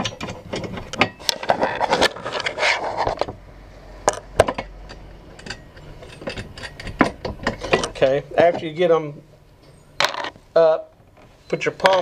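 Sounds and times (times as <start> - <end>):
nuts clicking and rubbing: 10.0 - 10.4.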